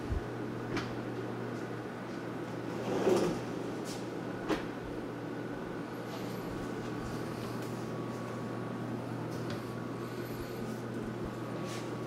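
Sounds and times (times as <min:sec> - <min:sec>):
drawer sliding rumble: 0:02.6 - 0:04.7.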